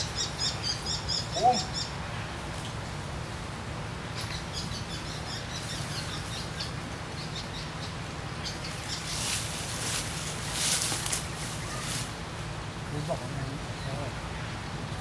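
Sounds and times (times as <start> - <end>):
small birds chirping: 0.0 - 3.0, 4.1 - 12.2.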